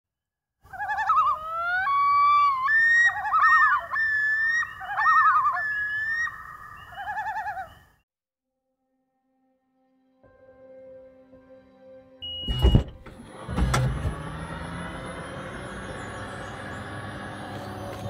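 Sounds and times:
loons tremolo calls: 0.6 - 8.0
loons wailing: 0.7 - 7.9.

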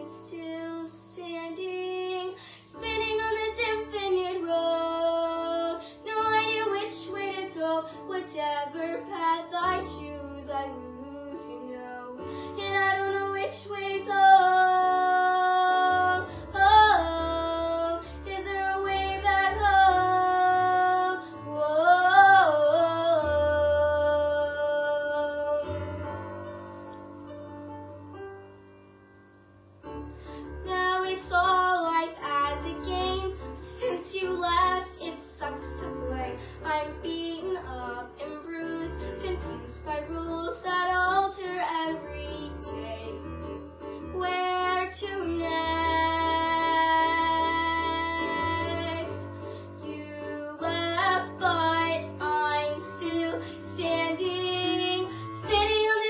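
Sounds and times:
girl singing: 0.0 - 26.0, 30.6 - 56.0
instrumental accompaniment: 22.8 - 56.0.

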